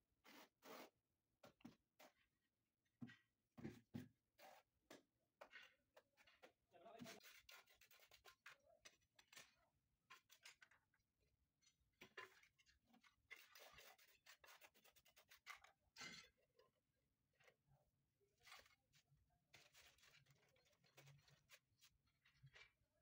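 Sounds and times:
scraping and clicking on glass tile: 12.1s - 16.4s.

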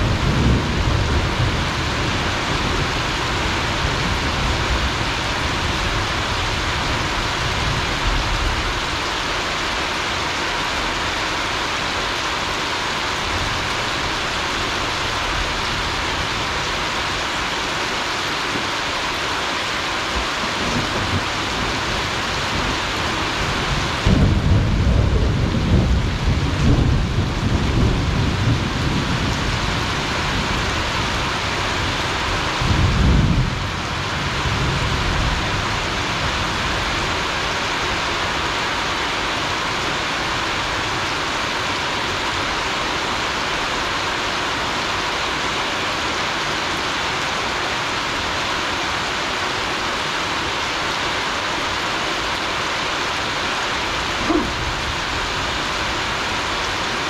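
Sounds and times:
thunder rumbling: 0.0s - 9.1s, 20.1s - 37.5s, 54.0s - 56.5s
heavy rain on leaves: 0.0s - 57.0s.

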